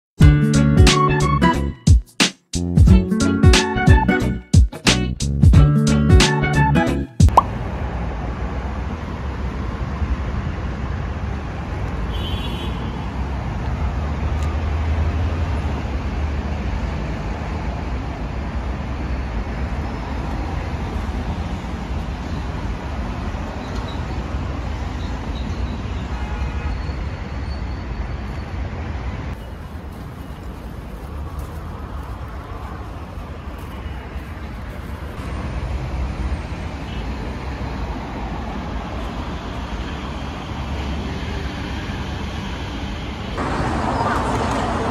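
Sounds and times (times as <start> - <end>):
road traffic rumble: 2.5 - 44.9.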